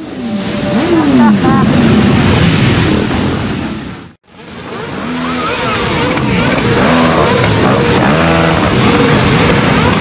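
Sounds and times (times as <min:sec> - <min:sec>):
motorcycle engines revving: 0:04.3 - 0:10.0.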